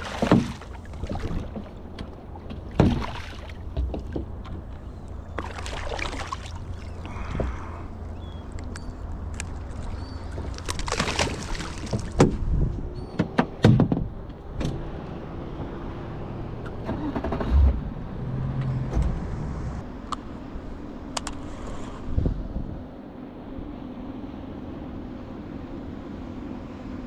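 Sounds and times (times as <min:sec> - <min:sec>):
knocks and clatter on boat hull: 0:00.0 - 0:04.8, 0:11.8 - 0:14.8
wind and water rumble: 0:00.0 - 0:27.0.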